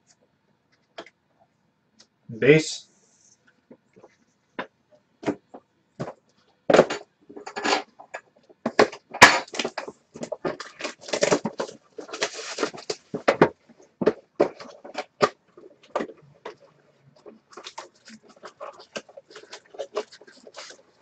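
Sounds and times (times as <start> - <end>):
plastic wrap crinkling and tearing: 9.4 - 13.3, 17.5 - 21.0.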